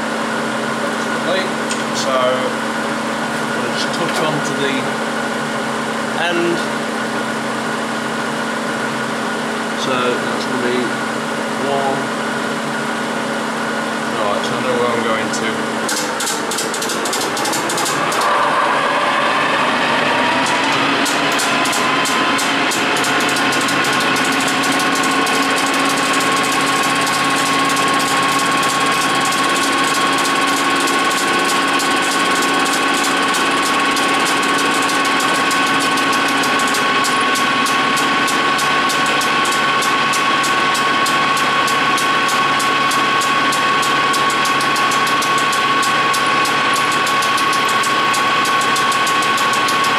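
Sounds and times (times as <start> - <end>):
lathe running with high whine: 0.0 - 49.9.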